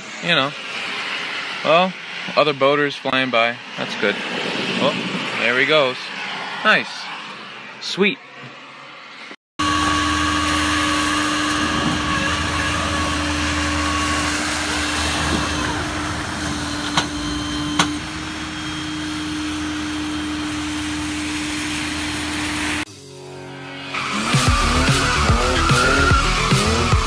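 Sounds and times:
machine whirring and humming: 0:00.0 - 0:27.0.

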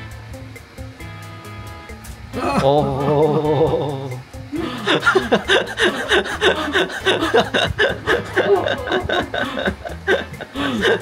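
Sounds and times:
man laughing hard: 0:02.4 - 0:11.0.

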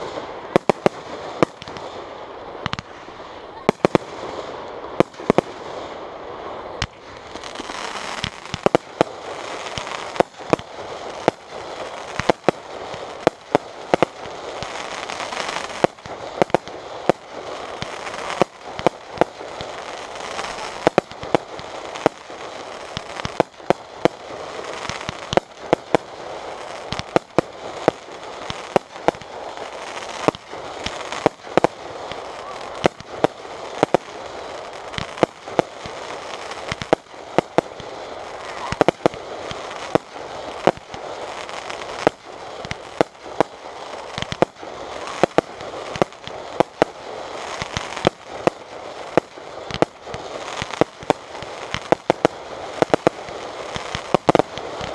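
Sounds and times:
fireworks bursting: 0:00.0 - 0:54.9.

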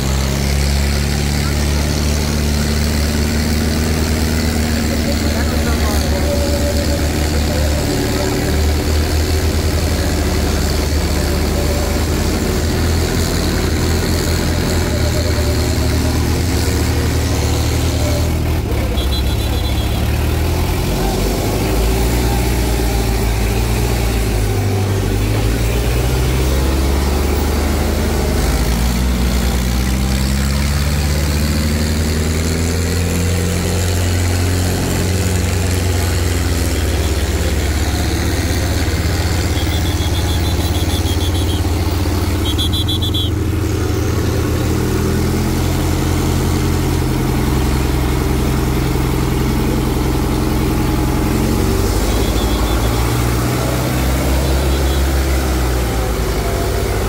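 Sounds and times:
tractor diesel engines running: 0:00.0 - 0:57.0.

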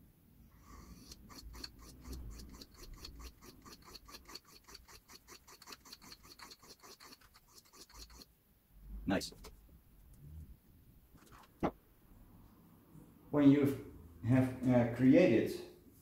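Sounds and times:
knife scraping on whetstone: 0:00.8 - 0:08.3.

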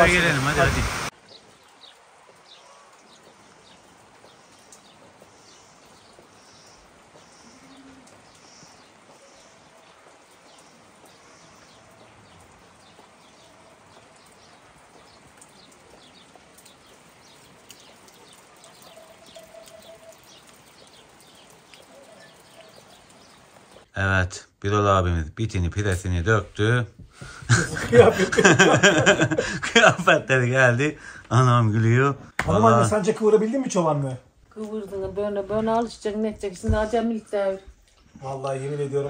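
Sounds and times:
small birds chirping: 0:00.1 - 0:24.0.

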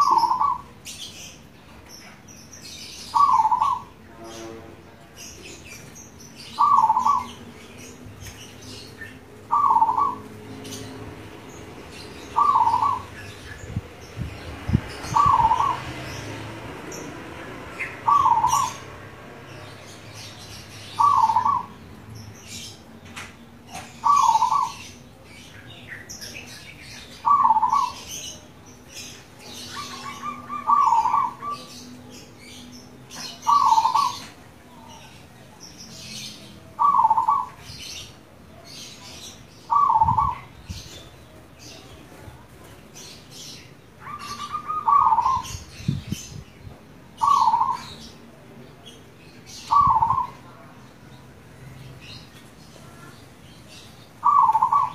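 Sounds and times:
dove cooing: 0:00.0 - 0:00.7, 0:03.1 - 0:03.9, 0:06.6 - 0:07.3, 0:09.4 - 0:10.3, 0:12.4 - 0:13.1, 0:15.2 - 0:15.8, 0:18.0 - 0:18.8, 0:21.0 - 0:21.7, 0:24.0 - 0:24.8, 0:27.2 - 0:28.1, 0:29.7 - 0:31.6, 0:33.5 - 0:34.3, 0:36.8 - 0:37.6, 0:39.7 - 0:40.5, 0:44.0 - 0:45.6, 0:47.2 - 0:47.8, 0:54.2 - 0:54.9.

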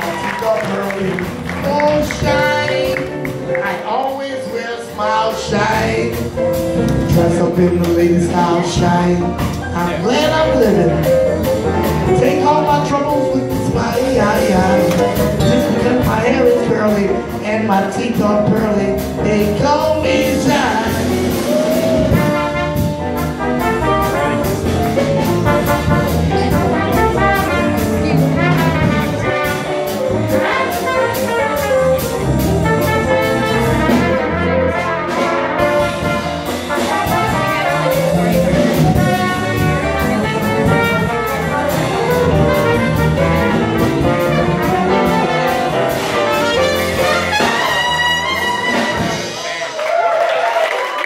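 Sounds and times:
drum kit steady beat: 0:00.0 - 0:49.6
trombone: 0:00.0 - 0:49.7
trumpet: 0:00.0 - 0:51.0
electric bass guitar: 0:05.3 - 0:49.4.

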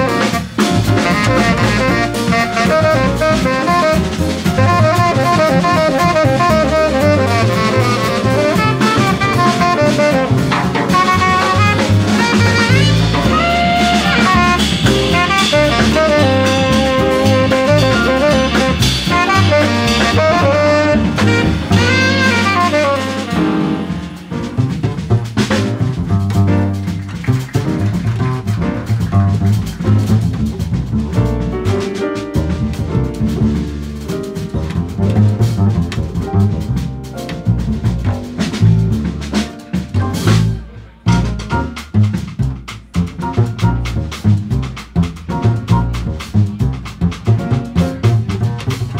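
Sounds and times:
saxophone melody: 0:00.0 - 0:24.1
bass: 0:00.0 - 0:48.9
drums: 0:00.0 - 0:48.9
jazz piano: 0:00.0 - 0:48.9.

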